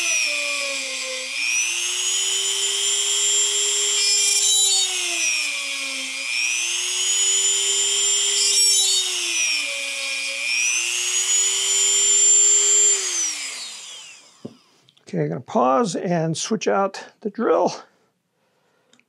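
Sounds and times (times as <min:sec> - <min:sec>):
rotary tool drilling wood: 0:00.0 - 0:14.7.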